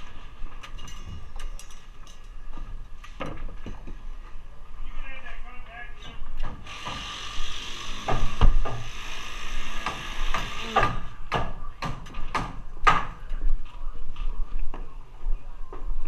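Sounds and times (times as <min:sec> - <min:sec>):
steady hiss: 0:06.6 - 0:11.1.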